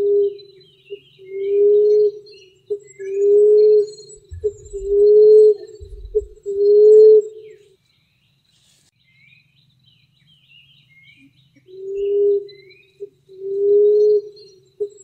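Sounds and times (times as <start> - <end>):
small birds chirping: 0.3 - 15.0
dove cooing: 3.1 - 7.3, 13.3 - 15.0.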